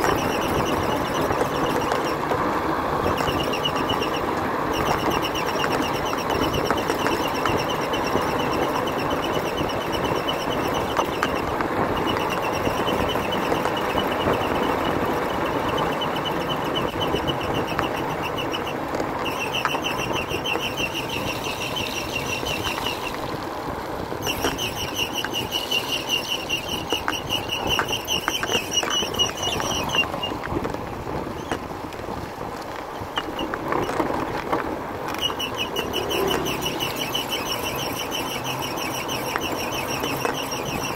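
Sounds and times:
motorbike engine running: 0:00.0 - 0:31.6
road and wind noise: 0:00.0 - 0:40.9.

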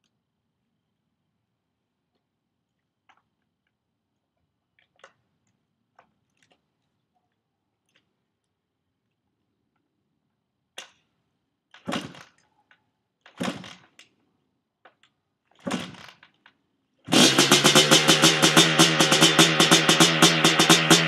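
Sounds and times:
kick-starter cranking engine: 0:17.1 - 0:21.0.

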